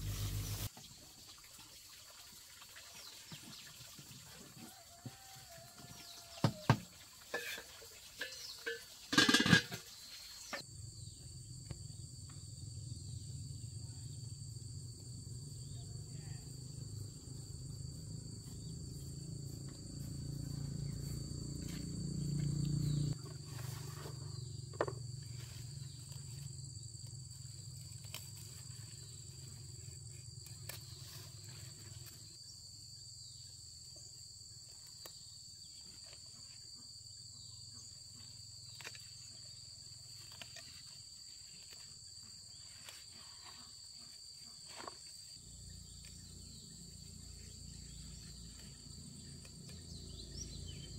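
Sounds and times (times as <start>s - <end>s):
high-pitched insect buzz: 15.6s - 32.5s.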